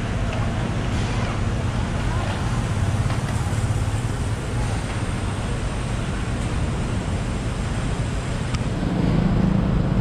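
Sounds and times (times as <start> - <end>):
city street traffic rumble: 0.0 - 10.0
vehicle engine: 0.0 - 10.0.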